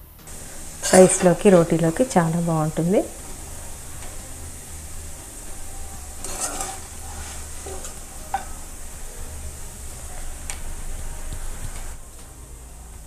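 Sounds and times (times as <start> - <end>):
steady low hum: 0.0 - 13.0
plate scraping: 3.1 - 12.0.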